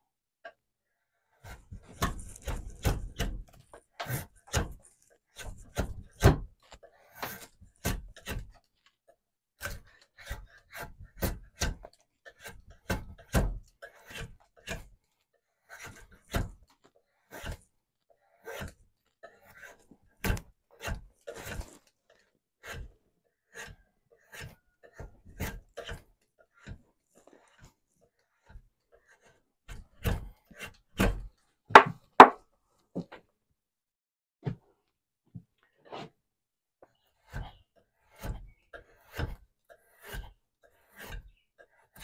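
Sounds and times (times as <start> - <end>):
tool scraping wood: 1.3 - 32.4, 35.6 - 36.2, 36.9 - 42.0
tools knocking on wood: 31.7 - 32.4.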